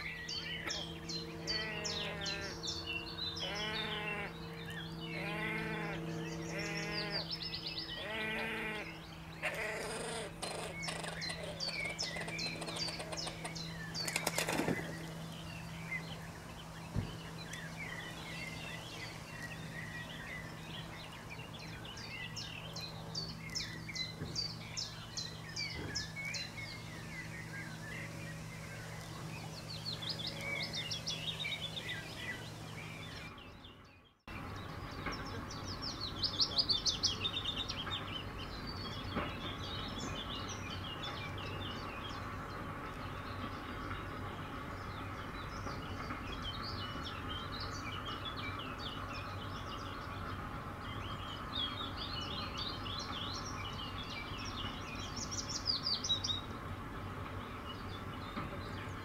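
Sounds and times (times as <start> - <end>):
grebe calling: 0.0 - 2.8, 3.4 - 4.5, 5.1 - 15.0
songbirds chirping: 0.0 - 59.0
steady low hum: 0.0 - 59.0.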